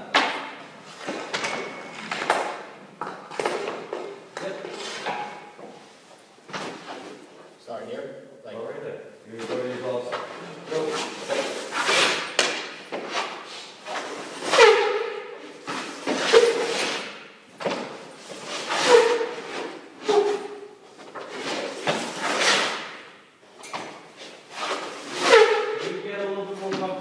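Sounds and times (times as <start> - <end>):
skate blades scraping ice: 15.7 - 17.1, 18.4 - 20.4, 24.5 - 25.9.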